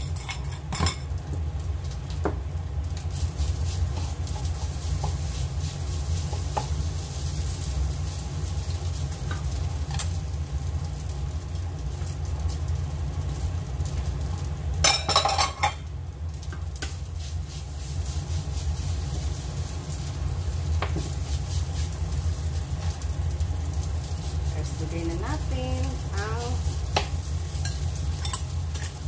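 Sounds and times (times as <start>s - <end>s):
light sizzle: 0.0s - 29.0s
steady low hum: 0.0s - 29.0s
spatula scraping frying pan: 3.1s - 7.7s.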